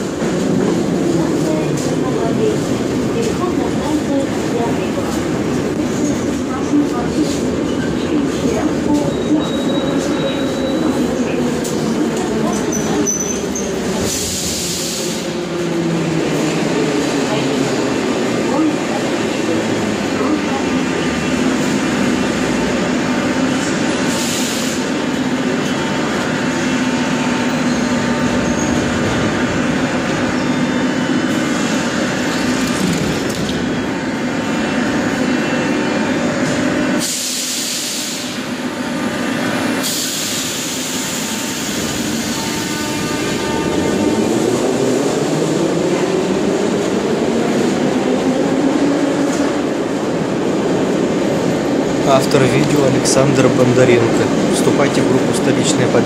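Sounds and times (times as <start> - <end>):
train machinery hum: 0.0 - 56.0.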